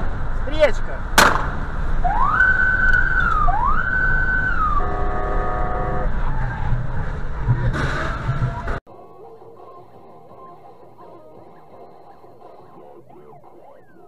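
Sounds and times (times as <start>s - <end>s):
engine and road rumble: 0.0s - 14.0s
car horn: 4.6s - 6.3s.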